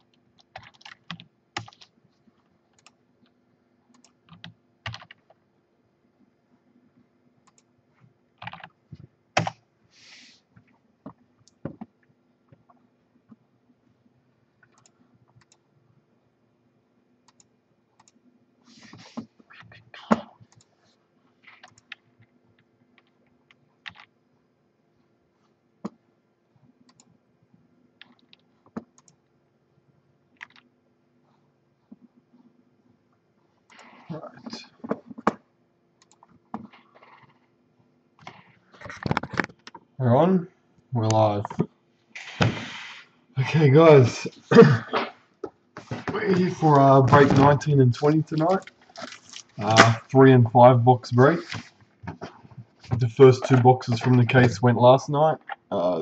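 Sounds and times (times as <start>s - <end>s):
computer keyboard clicking: 0.1s - 1.9s, 2.7s - 3.0s, 3.9s - 5.4s, 8.4s - 8.8s, 23.8s - 24.1s, 30.4s - 30.7s.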